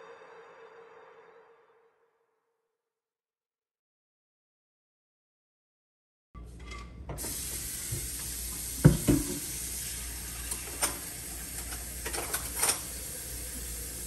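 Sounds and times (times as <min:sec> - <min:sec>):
kitchen noise hiss: 0:07.1 - 0:14.0
kitchenware knocking and clinking: 0:08.8 - 0:09.4.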